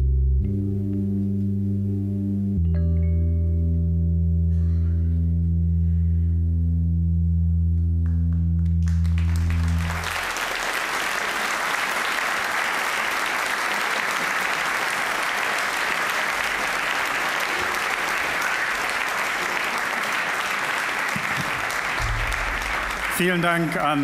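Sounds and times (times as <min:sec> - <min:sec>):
audience applause: 0:08.6 - 0:24.0.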